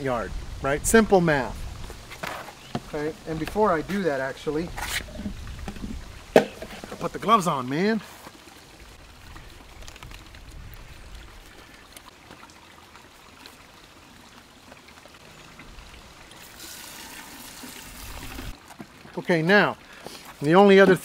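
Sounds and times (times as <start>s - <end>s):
hose water into plastic bucket: 9.1s - 21.0s.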